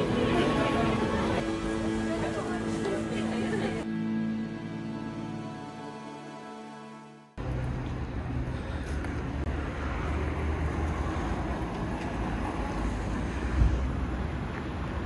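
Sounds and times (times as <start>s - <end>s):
traffic rumble: 0.0s - 3.9s, 7.4s - 15.0s.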